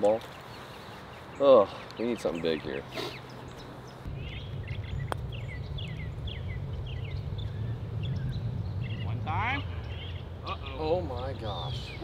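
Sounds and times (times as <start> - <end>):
bird chirping: 0.0 - 12.0
wind on microphone: 4.0 - 10.5
putter striking golf ball: 4.9 - 5.4.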